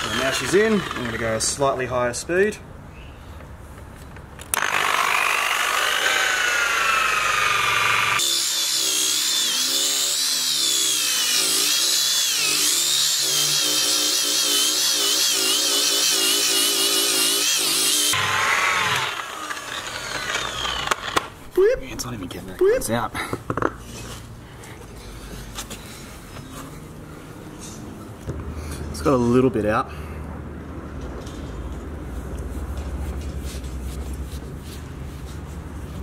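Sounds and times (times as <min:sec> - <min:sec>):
rotary polisher motor whine: 0:00.0 - 0:01.2, 0:04.5 - 0:21.2.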